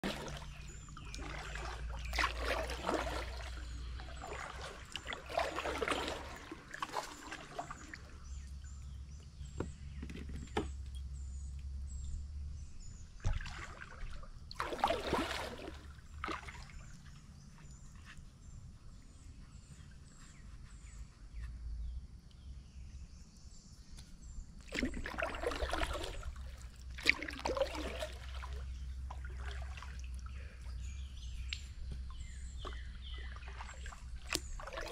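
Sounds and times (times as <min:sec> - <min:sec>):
kayak paddle splashing water: 0:00.0 - 0:08.4, 0:13.2 - 0:17.1, 0:24.6 - 0:31.3, 0:32.0 - 0:34.9.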